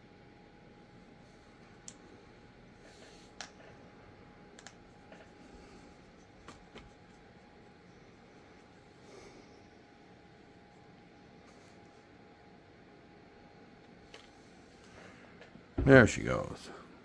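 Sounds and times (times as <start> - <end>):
faint steady hum: 0.0 - 17.0
small sharp clicks: 1.8 - 2.0, 4.5 - 4.8.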